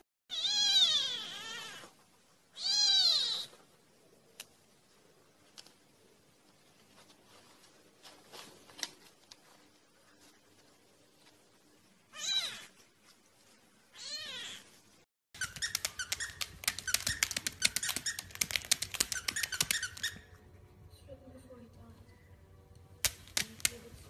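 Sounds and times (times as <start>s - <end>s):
cat meowing: 0.3s - 3.6s, 12.1s - 12.8s, 13.9s - 14.7s
sharp clicks and squeaks: 15.4s - 20.4s.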